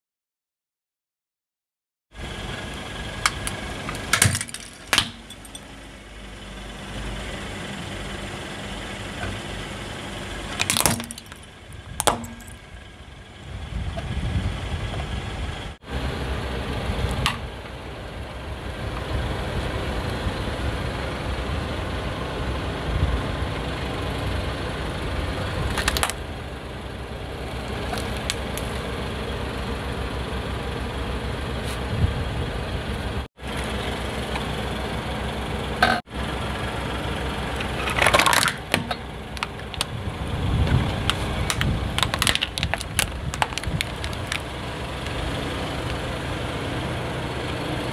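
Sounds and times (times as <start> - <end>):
car engine rumble: 2.1 - 47.9
plastic toys cracking under tyre: 3.2 - 5.3, 10.5 - 12.5, 25.7 - 26.2, 27.9 - 28.8, 37.6 - 39.9, 41.0 - 44.5.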